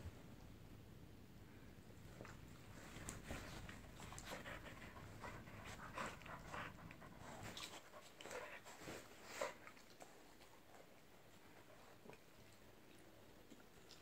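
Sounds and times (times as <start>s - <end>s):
dogs panting while play-wrestling: 2.4s - 12.0s.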